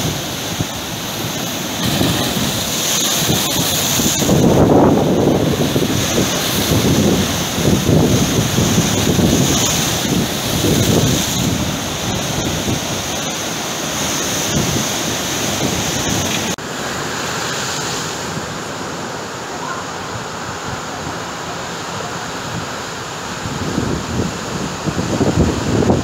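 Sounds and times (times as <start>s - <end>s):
wind buffeting microphone: 0.0s - 16.6s, 22.4s - 26.0s
sea surf breaking over rocks: 0.0s - 26.0s.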